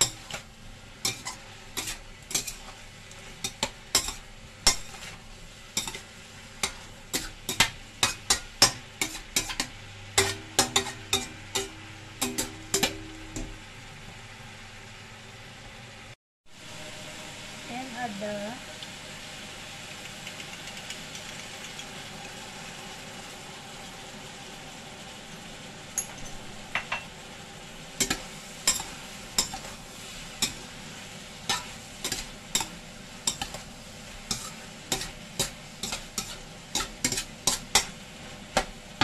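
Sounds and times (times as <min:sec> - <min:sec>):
meat sizzling in a wok: 0:00.0 - 0:39.0
metal spatula clanking on wok: 0:01.0 - 0:02.7, 0:03.4 - 0:05.2, 0:05.8 - 0:06.0, 0:06.6 - 0:13.6, 0:28.0 - 0:29.7, 0:31.5 - 0:33.6, 0:34.3 - 0:37.9.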